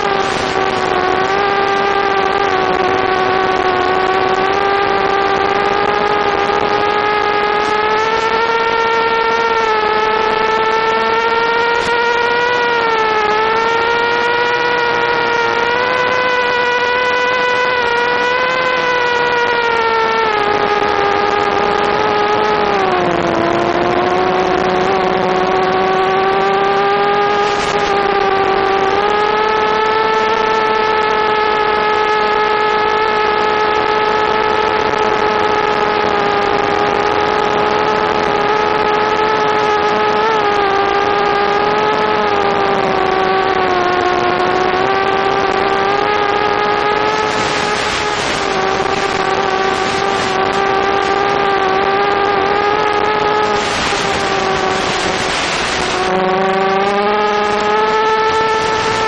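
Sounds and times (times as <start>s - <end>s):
hissing static: 0.0s - 11.2s, 27.2s - 29.0s, 46.4s - 59.0s
drone motors whining: 0.0s - 59.0s.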